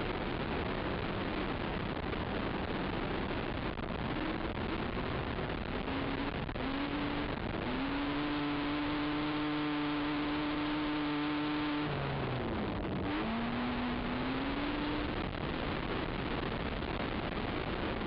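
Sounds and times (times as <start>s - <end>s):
wind and track noise hiss: 0.0s - 18.0s
atv engine revving: 5.8s - 15.3s.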